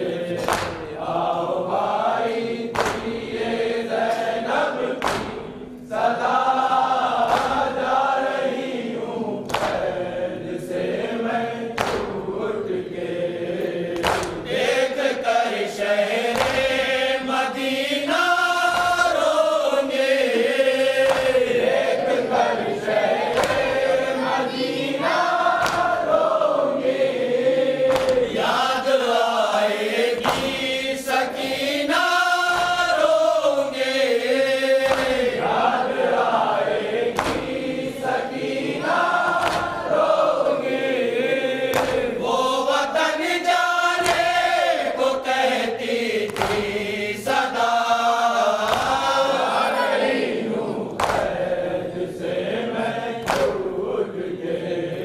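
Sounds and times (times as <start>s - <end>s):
men chanting lament: 0.0s - 55.0s
hands slapping on chests: 0.4s - 1.0s, 2.7s - 3.3s, 4.1s - 5.5s, 7.1s - 7.8s, 9.4s - 10.0s, 11.7s - 12.3s, 13.6s - 14.6s, 16.2s - 17.0s, 18.2s - 19.3s, 21.0s - 21.6s, 23.3s - 23.9s, 25.4s - 26.1s, 27.8s - 28.7s, 30.1s - 31.5s, 32.4s - 33.1s, 34.8s - 35.6s, 37.1s - 37.7s, 38.9s - 40.6s, 41.7s - 42.3s, 44.0s - 44.6s, 46.1s - 47.4s, 48.6s - 49.3s, 50.9s - 51.5s, 53.2s - 53.7s.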